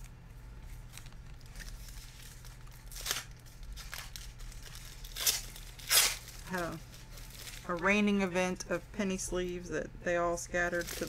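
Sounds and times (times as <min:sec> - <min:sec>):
foil wrapper crinkling and tearing: 0:00.0 - 0:08.0, 0:10.7 - 0:11.0.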